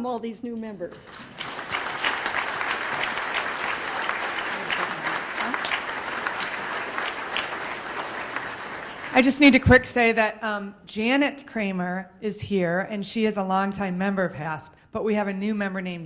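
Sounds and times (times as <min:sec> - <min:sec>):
audience applauding: 0:01.1 - 0:09.5.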